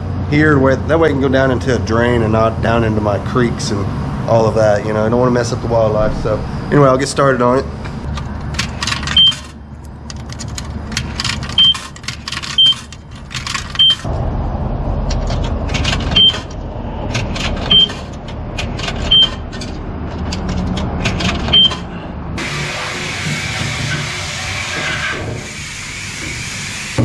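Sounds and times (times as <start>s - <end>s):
wash equipment rumbling: 0.0s - 8.6s, 12.6s - 27.0s
coins clinking into slot: 10.2s - 14.0s.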